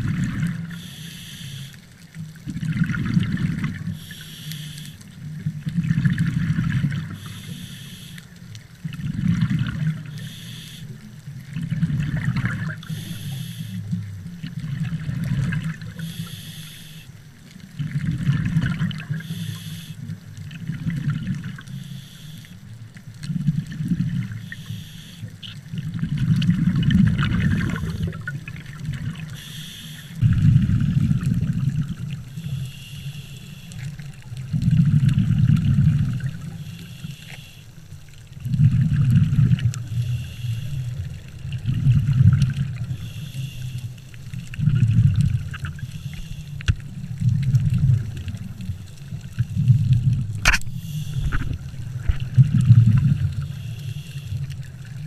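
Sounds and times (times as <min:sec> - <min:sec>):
rumble of exhaled bubbles: 0:00.0 - 0:00.9, 0:02.1 - 0:04.2, 0:05.0 - 0:07.6, 0:08.2 - 0:16.2, 0:17.3 - 0:21.8, 0:22.6 - 0:29.5, 0:30.2 - 0:32.6, 0:33.7 - 0:36.6, 0:38.1 - 0:55.0
regulator hissing on inhale: 0:00.7 - 0:01.9, 0:03.9 - 0:05.1, 0:07.1 - 0:08.4, 0:10.0 - 0:11.1, 0:12.7 - 0:14.0, 0:15.9 - 0:17.2, 0:19.1 - 0:20.2, 0:21.6 - 0:22.7, 0:24.3 - 0:25.5, 0:29.2 - 0:30.4, 0:32.3 - 0:34.2, 0:36.4 - 0:38.0, 0:39.8 - 0:41.3, 0:42.7 - 0:44.3, 0:45.6 - 0:46.8, 0:50.6 - 0:52.2, 0:53.0 - 0:55.0.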